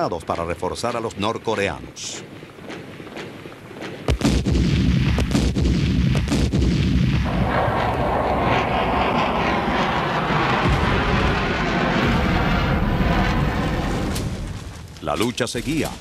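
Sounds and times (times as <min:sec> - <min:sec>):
sharp gunshots: 0:03.8 - 0:14.5
jet aircraft rushing: 0:07.2 - 0:14.9.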